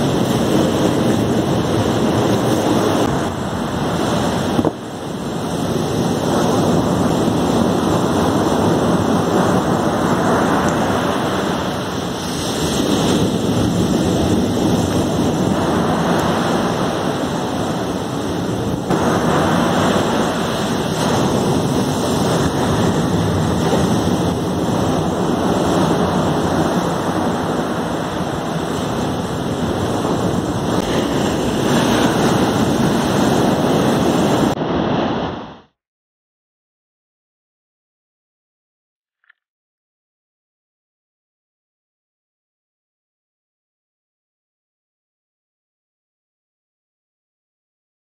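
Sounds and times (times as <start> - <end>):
wind buffeting microphone: 0.0 - 35.6
surf breaking on beach: 0.0 - 35.7.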